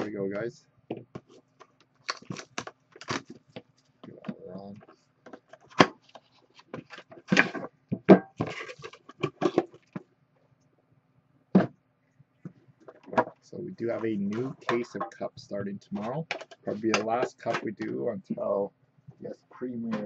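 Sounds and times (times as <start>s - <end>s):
plastic shrink wrap crinkling: 2.0s - 3.4s.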